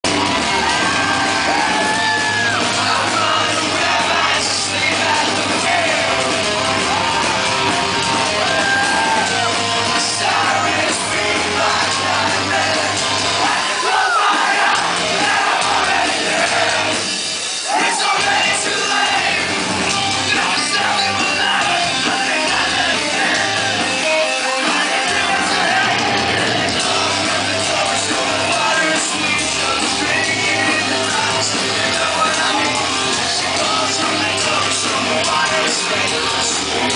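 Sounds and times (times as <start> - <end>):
rock band playing live: 0.0 - 36.9
man singing and shouting: 1.2 - 6.2, 17.6 - 36.9.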